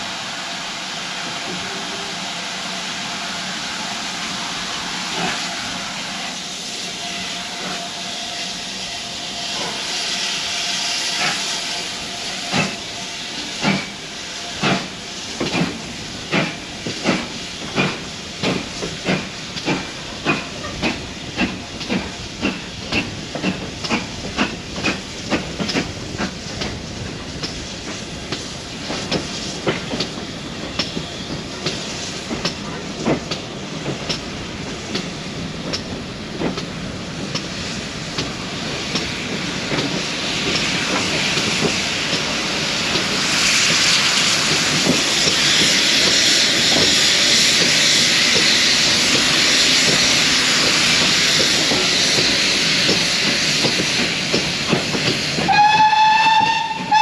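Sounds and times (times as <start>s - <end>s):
locomotive steam hissing: 0.0s - 57.0s
train wheels clicking over rail joints: 12.5s - 57.0s.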